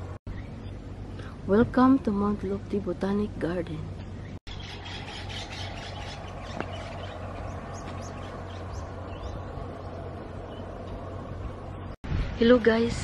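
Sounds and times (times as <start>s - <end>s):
steady low rumble: 0.0s - 13.0s
small birds chirping: 4.0s - 11.8s.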